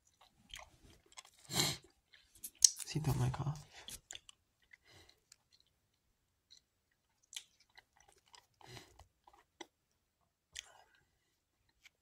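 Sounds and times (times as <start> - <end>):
mouth clicks and smacks: 2.2 - 2.9.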